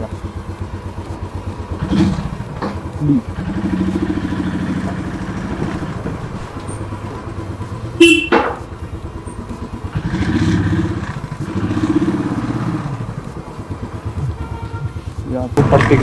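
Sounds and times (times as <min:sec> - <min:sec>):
motorcycle engine revving: 0:00.0 - 0:16.0
horn beep: 0:07.9 - 0:08.6, 0:14.3 - 0:15.1.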